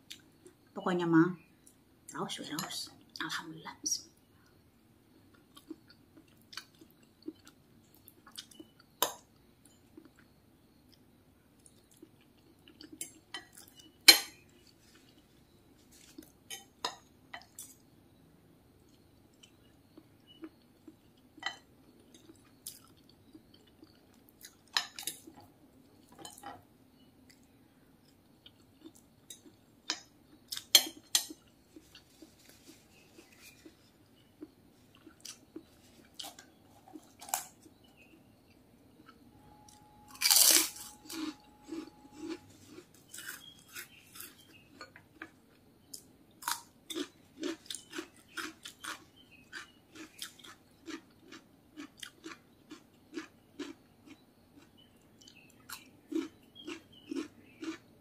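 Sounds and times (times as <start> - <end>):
faint low hum: 0.0 - 58.0
soft chewing: 5.2 - 17.9, 18.8 - 58.0
cutlery clinking on a plate: 13.0 - 14.4, 30.7 - 31.4.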